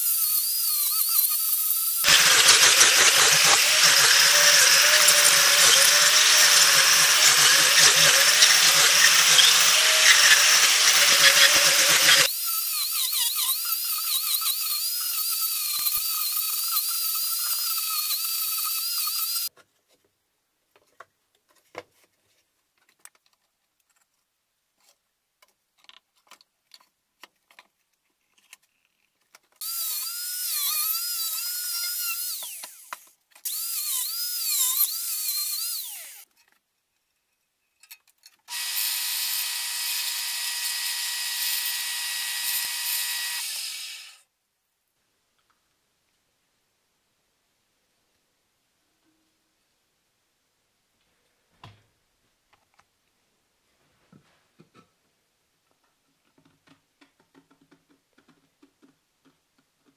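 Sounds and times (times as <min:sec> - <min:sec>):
angle grinder grinding wood: 0:00.0 - 0:19.5, 0:29.6 - 0:36.3, 0:38.5 - 0:44.2
power tool whine: 0:00.0 - 0:19.5, 0:29.6 - 0:36.2, 0:38.5 - 0:44.2.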